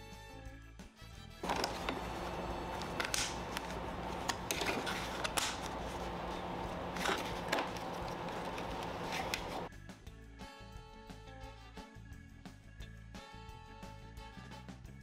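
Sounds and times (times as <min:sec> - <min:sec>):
background hiss and hum: 0:01.4 - 0:09.7.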